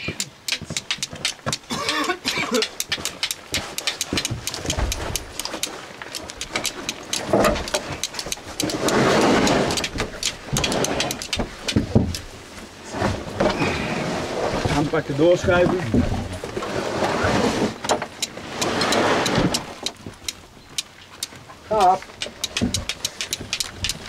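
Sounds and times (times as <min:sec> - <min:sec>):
steel striker scraping flint: 0:00.2 - 0:12.3, 0:17.3 - 0:21.4, 0:22.0 - 0:24.0.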